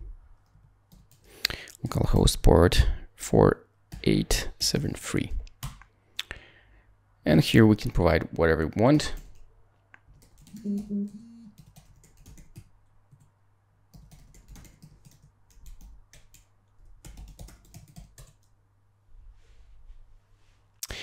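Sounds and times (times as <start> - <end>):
person's voice humming: 10.5 - 11.7.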